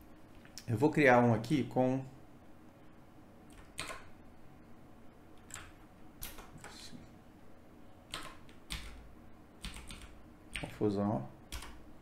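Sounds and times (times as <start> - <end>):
computer keyboard keystrokes: 3.5 - 4.1, 5.4 - 6.8, 8.1 - 9.0, 9.6 - 10.8, 11.5 - 11.8.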